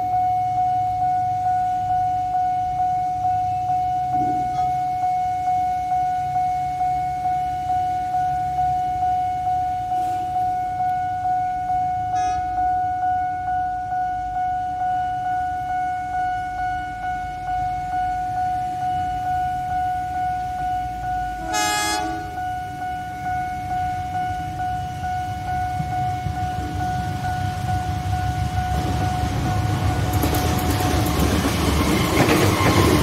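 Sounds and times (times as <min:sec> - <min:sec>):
level crossing warning bell: 0:00.0 - 0:33.0
locomotive horn: 0:04.1 - 0:04.9, 0:12.1 - 0:12.7, 0:21.3 - 0:22.5
short horn blast: 0:21.4 - 0:22.4.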